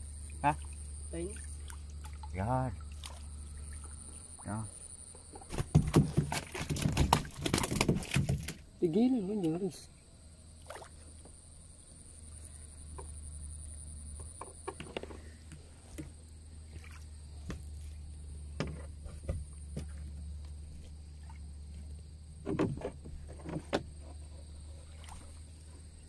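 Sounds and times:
steady low hum: 0:00.0 - 0:06.6, 0:08.0 - 0:26.0
boat knocking in water: 0:05.1 - 0:08.6, 0:22.4 - 0:24.1.

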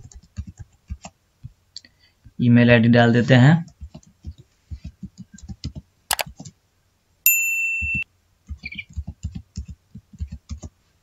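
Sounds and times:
keyboard keys tapping: 0:00.0 - 0:01.2, 0:03.7 - 0:06.5, 0:07.3 - 0:10.7
electronic bell ding: 0:07.3 - 0:08.0.

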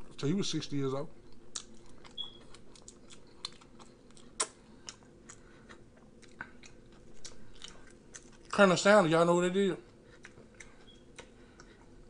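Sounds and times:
mouth chewing clicks and smacks: 0:01.3 - 0:08.6, 0:09.9 - 0:11.9.

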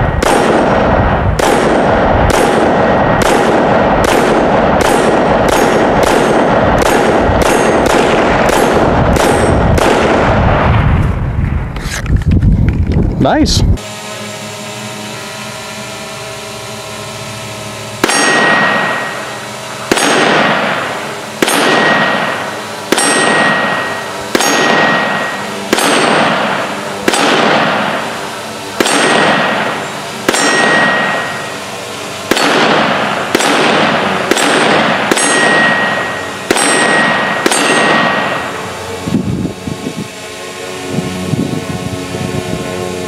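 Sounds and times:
pistol shots: 0:00.1 - 0:10.7, 0:18.0 - 0:28.2, 0:28.8 - 0:31.5, 0:32.2 - 0:38.6
steel target ringing: 0:04.4 - 0:08.4, 0:17.9 - 0:28.0, 0:28.8 - 0:38.8.

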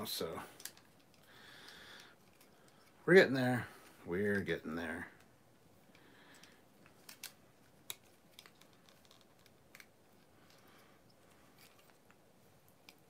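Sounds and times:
plastic parts clicking: 0:00.5 - 0:03.0, 0:05.9 - 0:13.0.

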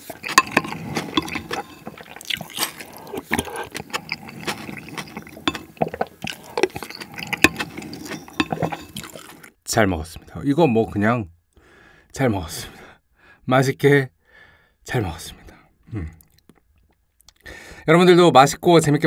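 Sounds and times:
spoon scraping ceramic bowl: 0:00.0 - 0:09.5
slurping and chewing: 0:00.0 - 0:09.6.

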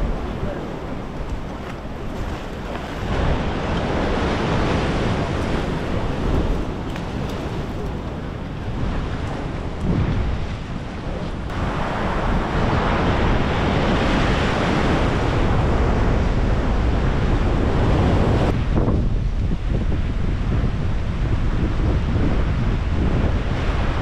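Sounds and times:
ocean surf breaking: 0:00.0 - 0:18.5
wind noise on microphone: 0:00.0 - 0:24.0.

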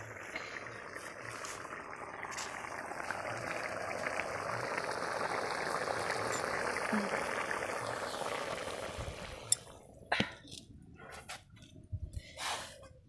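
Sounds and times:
curry bubbling in pan: 0:00.0 - 0:09.7.

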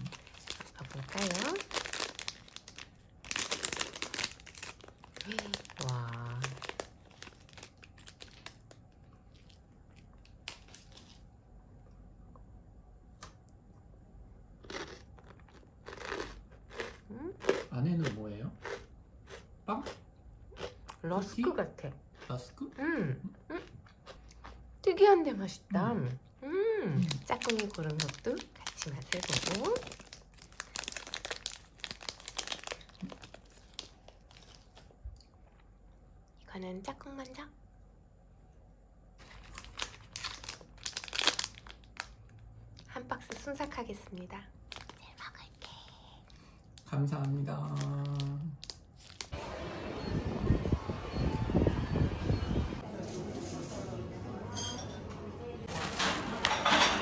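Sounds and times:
snack packaging rustling: 0:00.0 - 0:11.4, 0:27.0 - 0:35.6, 0:39.2 - 0:42.5, 0:43.2 - 0:49.4.

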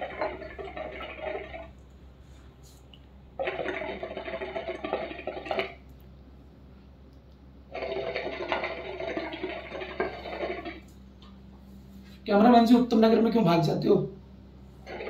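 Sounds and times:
water bubbling in hookah: 0:00.0 - 0:06.2, 0:07.0 - 0:11.6, 0:14.5 - 0:15.0.

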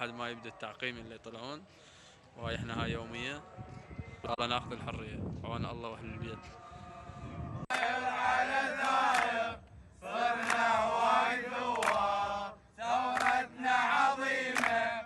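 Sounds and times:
men chanting in unison: 0:06.4 - 0:15.0.

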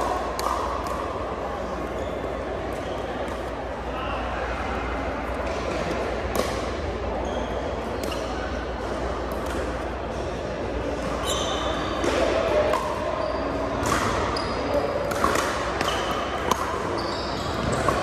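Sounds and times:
murmur of voices echoing: 0:00.0 - 0:18.0
shoes squeaking on hardwood floor: 0:11.2 - 0:11.9, 0:16.9 - 0:18.0.

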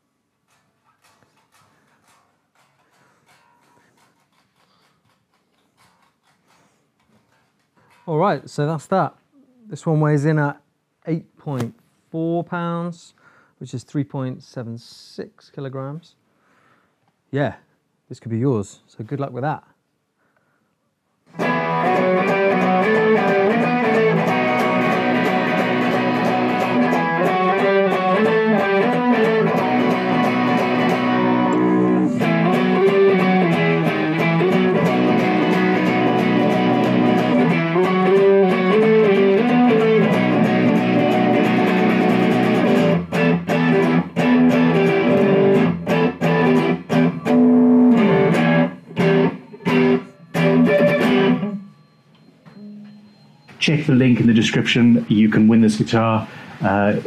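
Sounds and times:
electric guitar chords: 0:21.3 - 0:51.7.

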